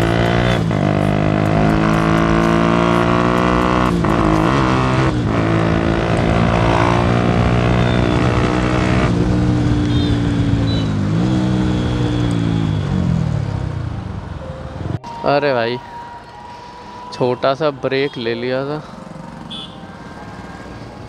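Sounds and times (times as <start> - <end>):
motorcycle engine running loudly: 0.0 - 14.0.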